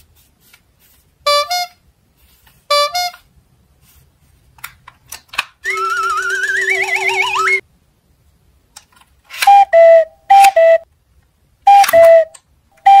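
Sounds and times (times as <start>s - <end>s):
warbling electronic siren: 5.7s - 7.6s.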